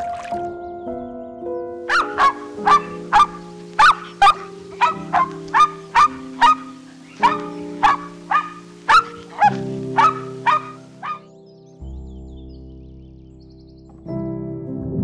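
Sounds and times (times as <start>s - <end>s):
background music with held chords: 0.0s - 15.0s
dog barking: 1.9s - 11.3s.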